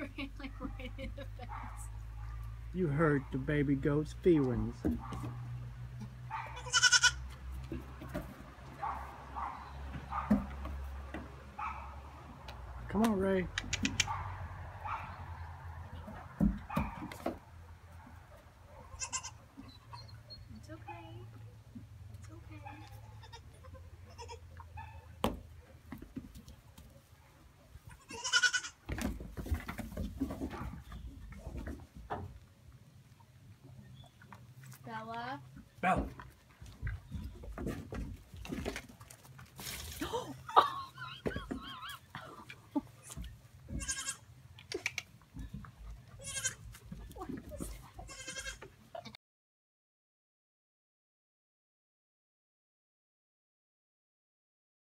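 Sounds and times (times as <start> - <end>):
baby goats bleating: 6.0 - 7.3, 18.9 - 19.5, 22.8 - 24.6, 27.9 - 28.8, 43.0 - 44.3, 46.1 - 46.8, 47.6 - 49.2.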